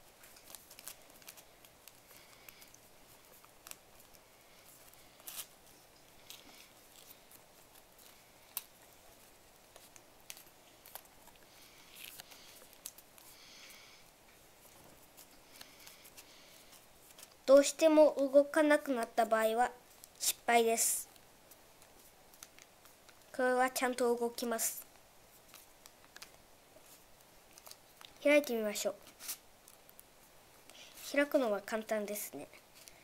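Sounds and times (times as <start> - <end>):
paper crinkling and rustling: 0.0 - 13.7, 14.6 - 17.5, 24.4 - 31.2.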